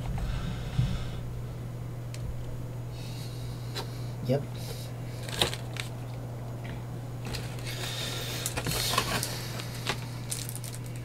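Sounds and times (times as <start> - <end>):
steady low hum: 0.0 - 11.0
plastic rustling: 5.2 - 6.0, 7.2 - 11.0.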